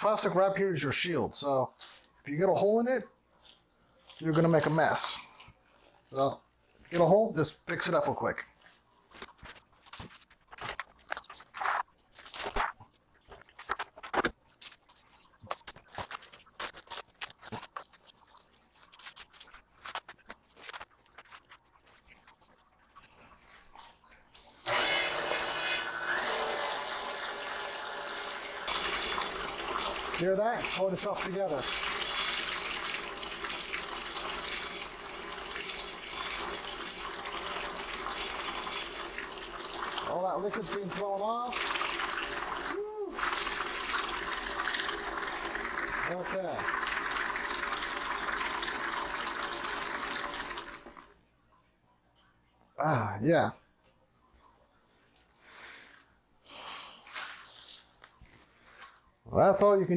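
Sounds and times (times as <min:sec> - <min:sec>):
plastic cling wrap crinkling: 0:01.7 - 0:02.3, 0:03.3 - 0:07.1, 0:08.5 - 0:22.6, 0:57.0 - 0:59.2
buttermilk sloshing: 0:08.5 - 0:24.3, 0:57.1 - 0:59.0
stand mixer running: 0:24.7 - 0:30.2.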